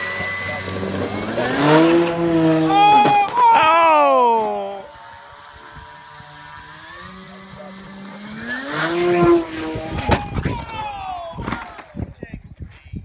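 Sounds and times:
model airplane motor whining: 0:00.0 - 0:10.4.

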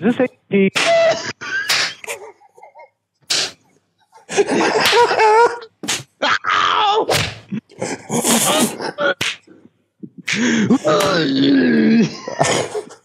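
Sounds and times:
sharp slap-like hits: 0:00.8 - 0:02.1, 0:03.3 - 0:03.6, 0:04.8 - 0:05.2, 0:05.8 - 0:06.2, 0:07.1 - 0:07.5, 0:09.2 - 0:09.4
men groaning and crying out: 0:04.3 - 0:09.2, 0:10.1 - 0:13.0.

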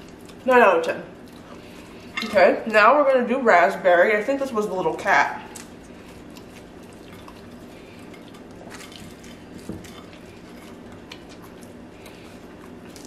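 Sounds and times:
pastry crackling: 0:04.0 - 0:13.0.

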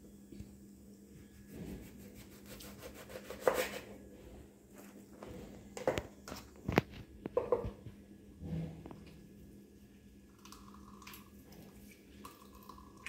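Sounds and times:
knife cutting lemon: 0:01.6 - 0:03.9
knife knocking on cutting board: 0:07.4 - 0:07.7.

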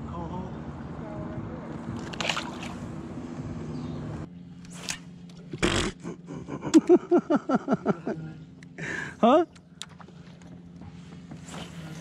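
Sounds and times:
person laughing: 0:05.6 - 0:08.2.

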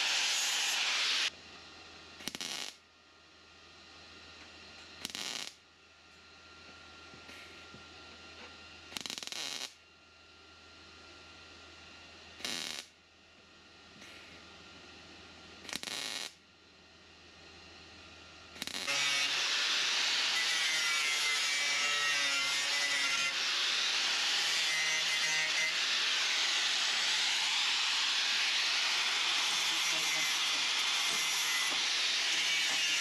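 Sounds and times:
angle grinder grinding steel: 0:00.0 - 0:01.3, 0:18.6 - 0:33.0
welding bursts: 0:00.0 - 0:01.3, 0:02.2 - 0:02.8, 0:05.0 - 0:05.6, 0:09.0 - 0:09.8, 0:12.4 - 0:12.9, 0:15.7 - 0:16.4, 0:18.6 - 0:33.0.

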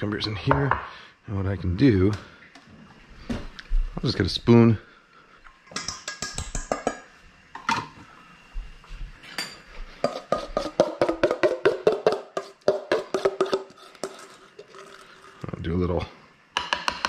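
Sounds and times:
spoon clinking against metal bowl: 0:05.7 - 0:07.1.

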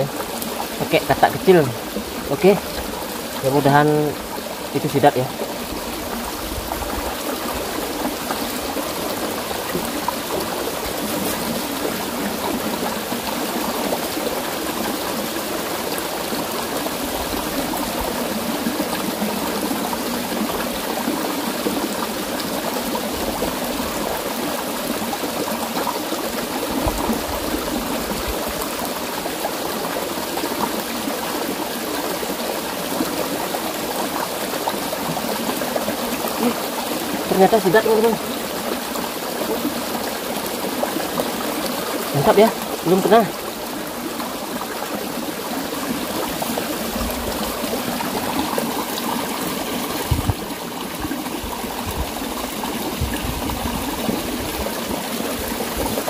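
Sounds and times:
stream flowing over stones: 0:00.0 - 0:56.0.

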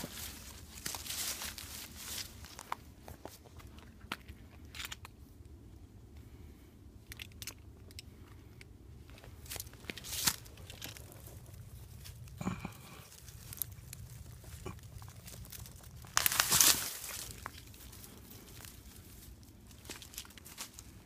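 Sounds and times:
dry brush and leaves rustling: 0:00.0 - 0:04.0, 0:09.0 - 0:21.0
twigs snapping: 0:09.4 - 0:21.0.

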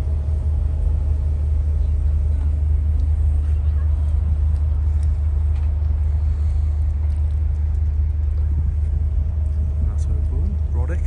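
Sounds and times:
ship engines droning: 0:00.0 - 0:11.0.

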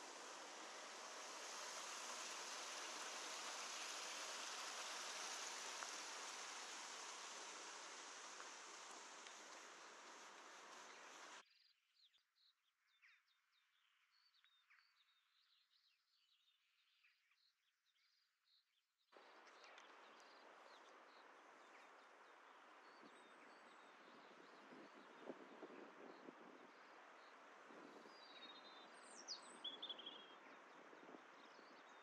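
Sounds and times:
soft outdoor hiss: 0:00.0 - 0:11.4, 0:19.2 - 0:32.0
small birds chirping: 0:00.0 - 0:32.0.

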